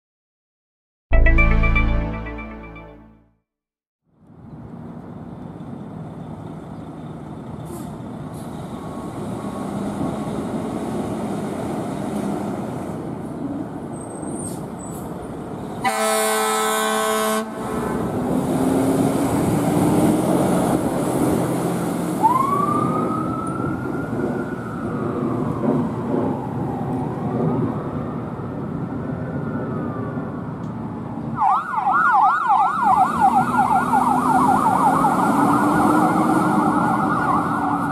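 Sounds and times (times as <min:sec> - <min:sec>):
siren rising and falling: 0:01.1 - 0:03.2, 0:22.2 - 0:28.4, 0:31.3 - 0:37.9
air horn blast: 0:15.8 - 0:17.7
fast warbling siren: 0:22.2 - 0:26.7, 0:31.4 - 0:37.9.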